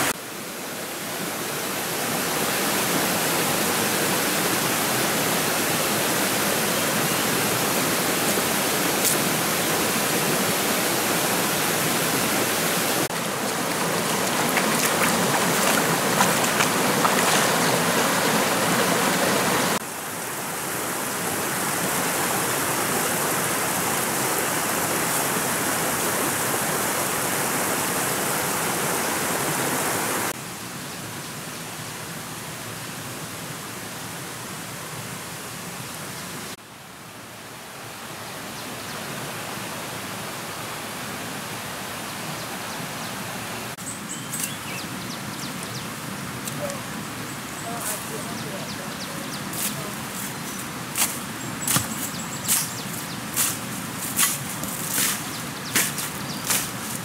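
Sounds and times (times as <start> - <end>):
stream rippling over stones: 0.0 - 30.4, 43.6 - 57.0.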